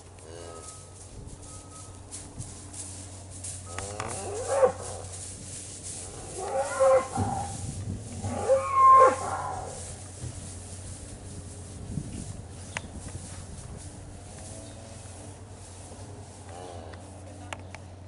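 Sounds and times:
cattle mooing: 0:00.2 - 0:00.8, 0:03.7 - 0:05.2, 0:06.0 - 0:07.6, 0:08.2 - 0:09.8.

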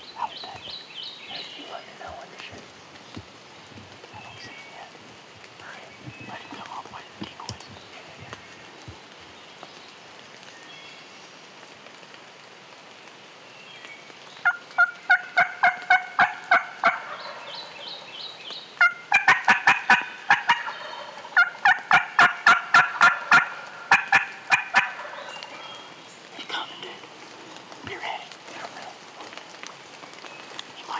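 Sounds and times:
turkey calling: 0:14.4 - 0:18.1, 0:18.8 - 0:25.9.

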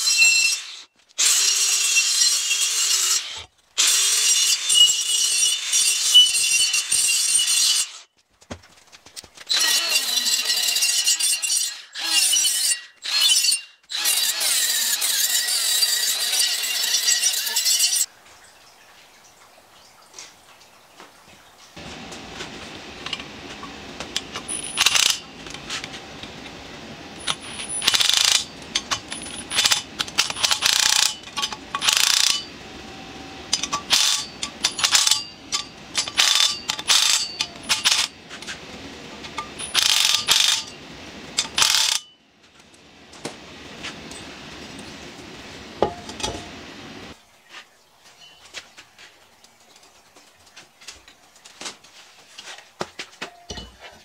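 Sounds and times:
cordless ratchet whirring: 0:24.5 - 0:25.2, 0:27.2 - 0:28.5, 0:29.1 - 0:32.5, 0:33.6 - 0:38.1, 0:39.6 - 0:40.7, 0:41.6 - 0:42.0.

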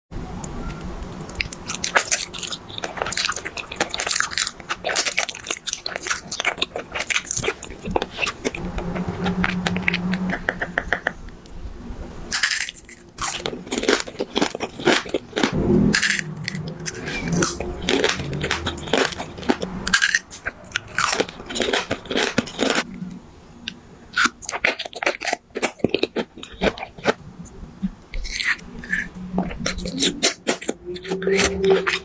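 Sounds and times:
wet chewing: 0:01.1 - 0:11.2, 0:12.4 - 0:22.9, 0:23.7 - 0:27.2, 0:28.1 - 0:32.0
crisp crunching of a treat: 0:01.2 - 0:08.6, 0:12.3 - 0:22.8, 0:24.1 - 0:27.2, 0:28.2 - 0:32.0.

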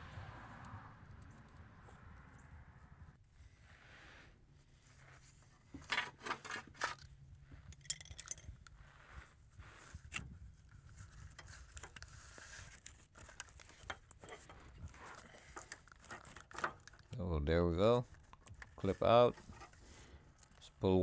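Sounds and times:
tool clicks and scrapes: 0:05.2 - 0:17.1, 0:18.1 - 0:20.6.

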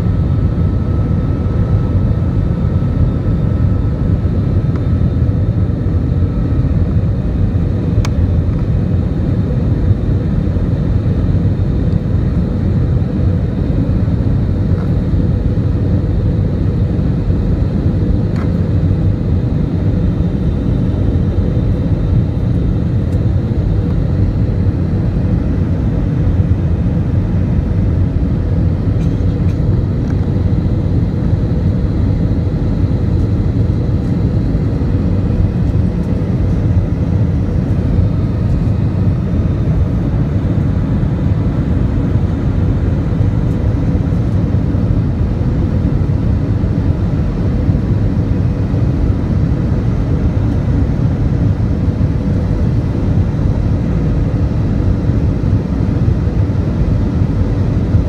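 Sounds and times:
airliner cabin engine roar: 0:00.0 - 0:58.0
faint steady hum: 0:00.0 - 0:58.0.

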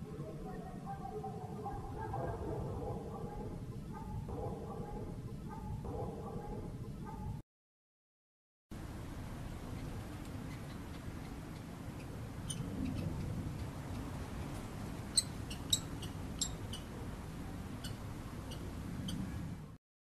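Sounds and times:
steady low rumble: 0:00.0 - 0:07.4, 0:08.8 - 0:19.8.

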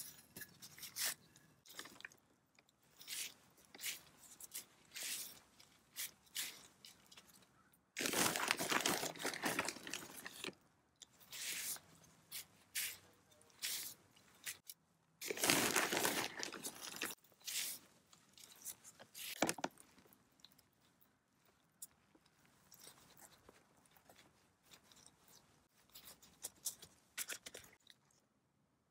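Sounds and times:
hands scooping potting soil: 0:02.8 - 0:19.8.

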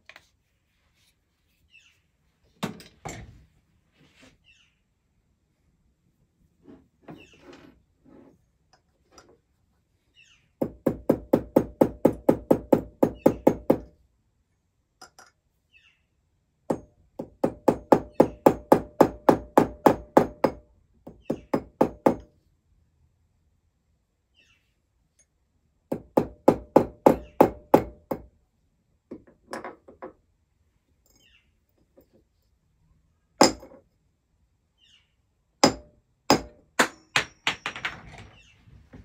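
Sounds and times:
small hammer striking metal ring: 0:33.4 - 0:33.8.

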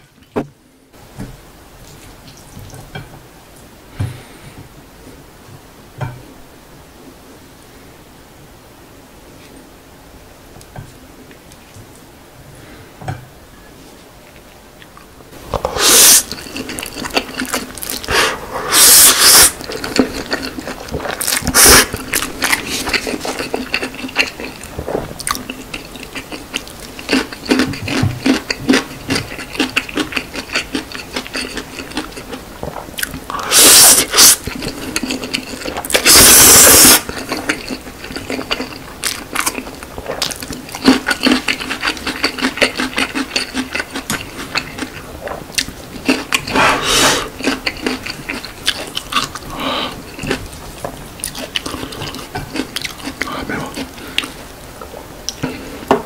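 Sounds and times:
man chewing: 0:14.2 - 0:55.9
slurping noodles: 0:15.5 - 0:24.6, 0:33.0 - 0:37.8, 0:46.1 - 0:48.4.

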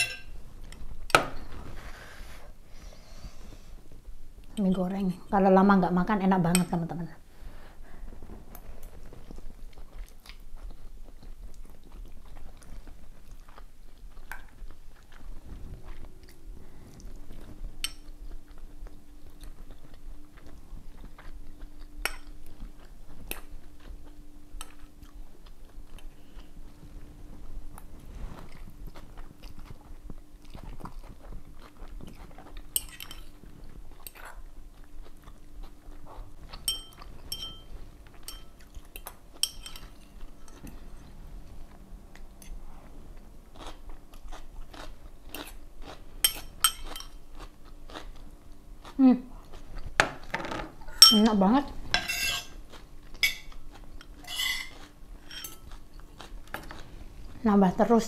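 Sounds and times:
cutlery scraping a bowl: 0:00.0 - 0:00.3, 0:36.6 - 0:41.0, 0:46.2 - 0:47.2, 0:51.9 - 0:52.6, 0:53.2 - 0:55.7
faint low hum: 0:00.0 - 0:58.0
person chewing: 0:09.2 - 0:26.8, 0:27.7 - 0:37.3, 0:37.9 - 0:49.9, 0:52.5 - 0:57.4.

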